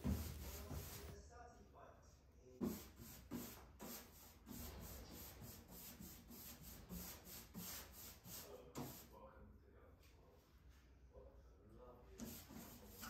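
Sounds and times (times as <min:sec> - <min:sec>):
paintbrush bristles rubbing on wood: 0:00.0 - 0:01.2, 0:02.6 - 0:09.1, 0:12.2 - 0:13.0.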